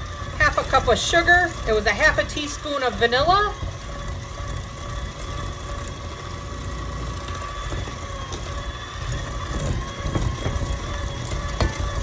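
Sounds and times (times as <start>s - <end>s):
electric mixer motor humming: 0.0s - 12.0s.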